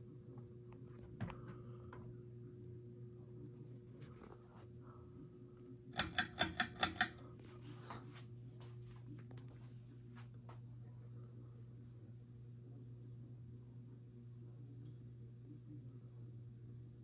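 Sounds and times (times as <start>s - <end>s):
ceiling fan motor hum: 0.0s - 17.0s
sharp clicks: 6.0s - 7.2s.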